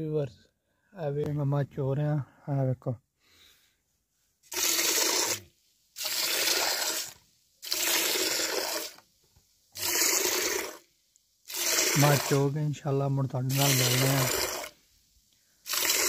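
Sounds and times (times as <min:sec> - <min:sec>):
milk jets streaming into metal bucket: 0:04.5 - 0:09.0, 0:09.8 - 0:10.8, 0:11.4 - 0:12.6, 0:13.4 - 0:14.8, 0:15.6 - 0:16.0.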